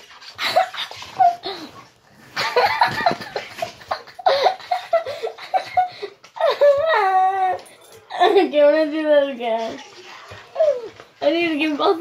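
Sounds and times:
girl laughing: 2.4s - 8.6s.

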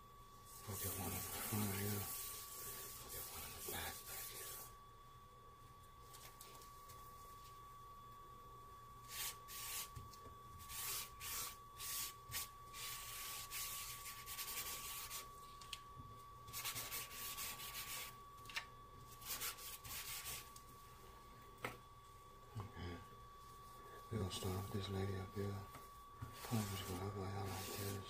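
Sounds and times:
charcoal scratching on paper: 0.5s - 4.7s, 9.1s - 9.9s, 10.6s - 15.3s, 16.5s - 18.2s, 19.1s - 20.5s, 26.3s - 28.0s.

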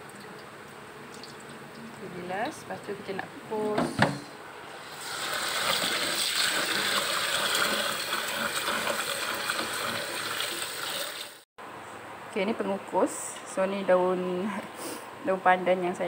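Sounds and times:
tap water pouring into bowl: 5.1s - 11.4s.

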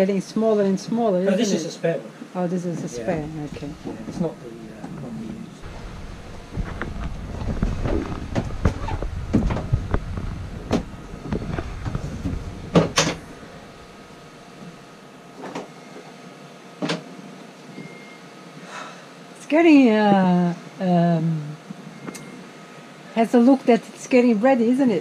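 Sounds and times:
rubber hose knocking and scraping: 5.6s - 13.2s.

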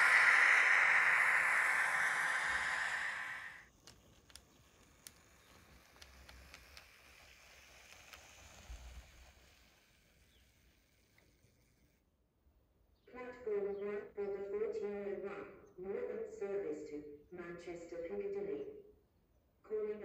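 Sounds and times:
model train rumbling on track: 0.0s - 3.6s
faint clicks: 0.0s - 9.5s
steady hiss: 0.0s - 11.9s.

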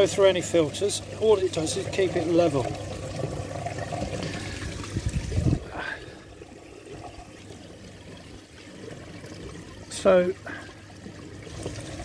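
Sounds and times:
water trickling into a tub: 0.0s - 12.0s.

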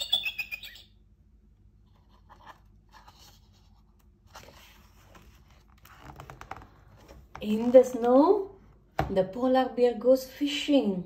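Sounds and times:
paper rustling: 1.9s - 7.3s.

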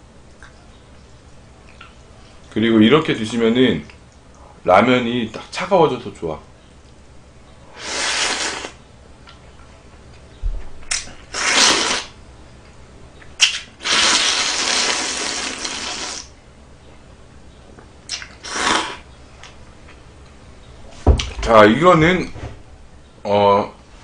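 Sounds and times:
person slurping noodles: 7.8s - 8.8s, 11.3s - 12.1s, 13.8s - 16.3s, 18.4s - 19.0s.

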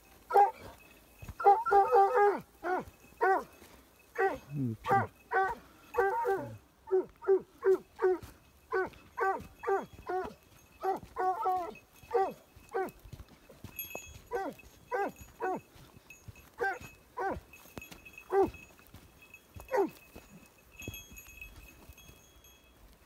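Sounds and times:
dog yelping: 0.3s - 0.7s, 1.4s - 3.6s, 4.2s - 13.0s, 14.3s - 15.6s, 16.6s - 17.4s, 18.3s - 18.6s, 19.7s - 20.0s.

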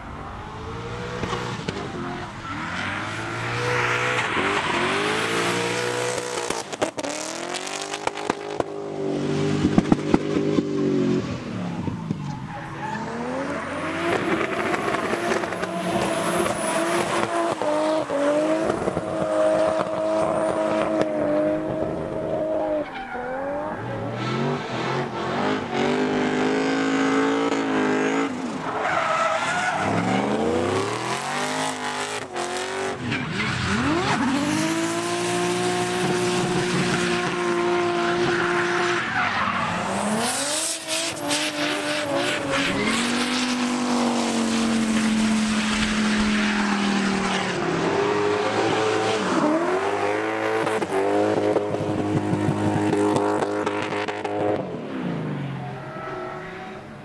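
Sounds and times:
car engines at high revs: 0.0s - 56.7s.

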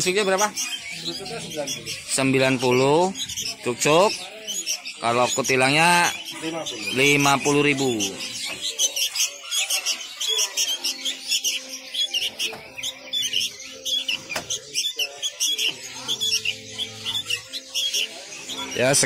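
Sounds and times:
songbirds chirping: 0.0s - 19.0s.

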